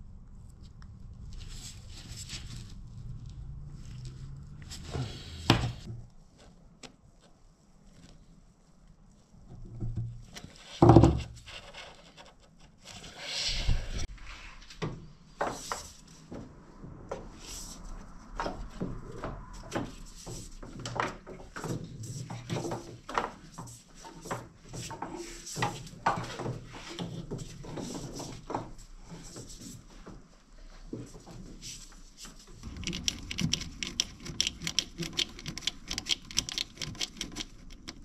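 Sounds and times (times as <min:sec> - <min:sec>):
hose clicking knocking and rubbing: 0:32.6 - 0:38.0.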